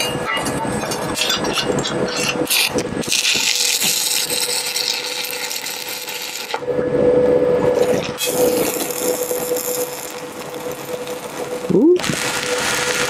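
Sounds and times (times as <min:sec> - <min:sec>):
welding arc crackling: 0:00.0 - 0:06.7, 0:07.8 - 0:13.0
steady hum: 0:06.5 - 0:13.0.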